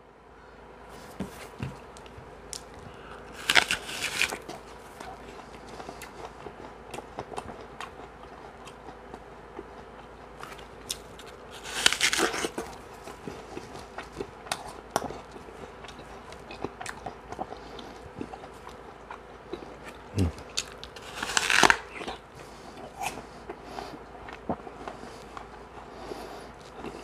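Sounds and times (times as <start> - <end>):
chewing apple: 1.0 - 27.0
person biting crisp apple: 2.6 - 6.3, 10.4 - 17.5, 19.1 - 22.2.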